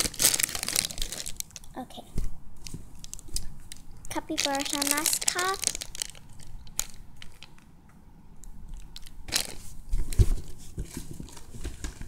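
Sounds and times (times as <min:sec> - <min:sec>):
plastic wrapping crinkling: 0:00.0 - 0:01.8, 0:02.6 - 0:07.7, 0:08.8 - 0:12.0
hands squeezing foam toy: 0:02.9 - 0:07.5.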